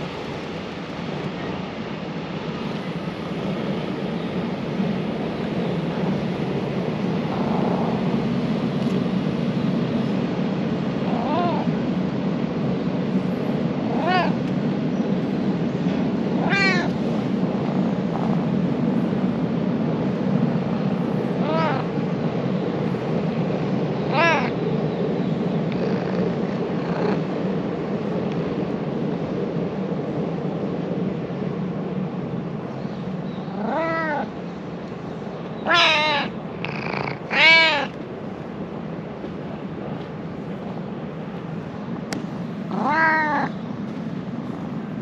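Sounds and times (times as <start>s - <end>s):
cat meowing: 11.1s - 11.7s, 13.8s - 14.4s, 16.4s - 17.0s, 21.4s - 21.9s, 24.1s - 24.6s, 33.5s - 34.3s, 35.6s - 38.0s, 42.7s - 43.6s.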